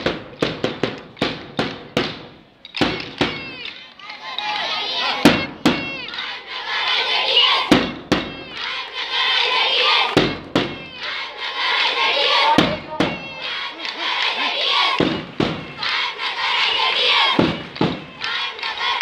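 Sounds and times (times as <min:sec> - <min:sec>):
children chanting and shouting: 0:02.7 - 0:19.0
sharp knocks: 0:17.4 - 0:18.1.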